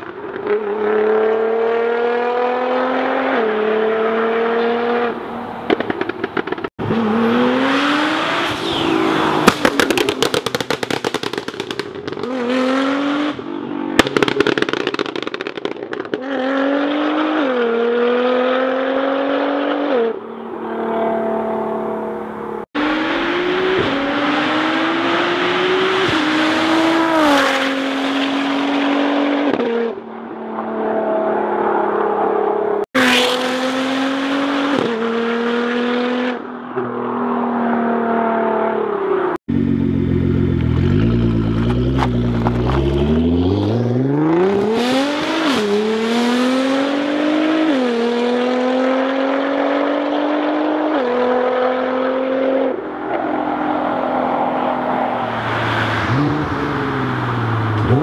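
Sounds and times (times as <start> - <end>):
sports car engine accelerating: 39.5 - 58.0
exhaust cracks at gear changes: 40.4 - 43.6.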